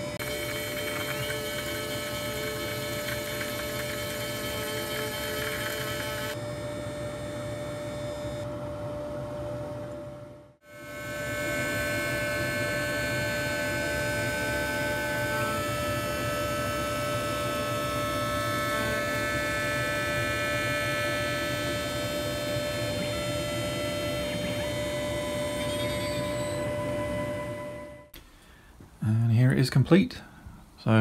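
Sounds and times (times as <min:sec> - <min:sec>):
machine spindle cutting metal whine: 0:00.0 - 0:06.4, 0:10.7 - 0:28.1.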